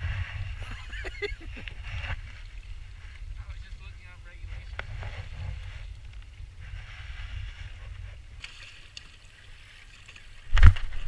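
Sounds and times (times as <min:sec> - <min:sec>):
wind rumble on microphone: 0:00.0 - 0:08.5
water lapping against a hull: 0:00.0 - 0:11.0.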